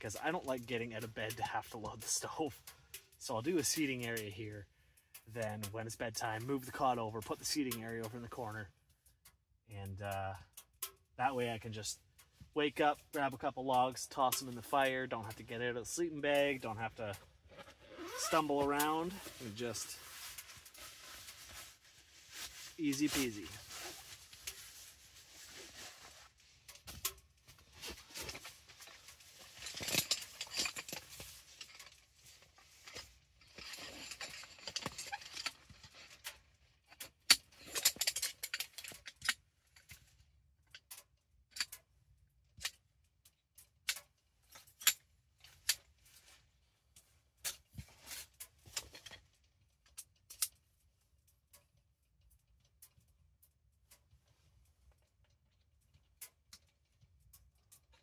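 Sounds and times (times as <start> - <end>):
sharp clicks and light knocks: 0.0 - 21.7, 25.5 - 58.0
fabric and bags rustling: 17.5 - 26.4.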